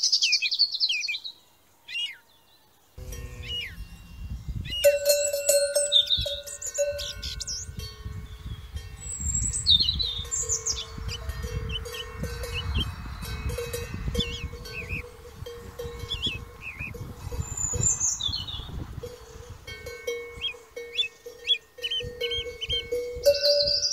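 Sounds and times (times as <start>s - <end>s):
small birds chirping: 0.0s - 23.9s
low rumble: 3.0s - 19.1s
cowbells clanking: 3.0s - 23.9s.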